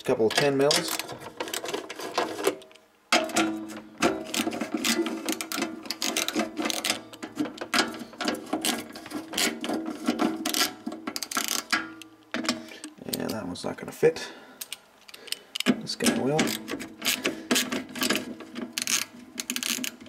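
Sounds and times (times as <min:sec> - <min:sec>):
socket ratchet clicking: 0:10.5 - 0:12.1, 0:14.6 - 0:15.7, 0:16.4 - 0:20.0.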